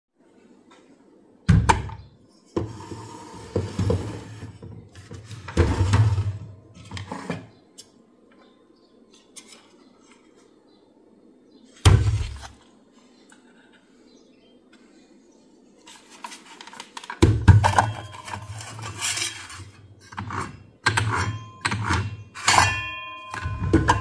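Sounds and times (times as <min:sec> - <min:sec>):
rattling and scraping: 0:17.5 - 0:20.7.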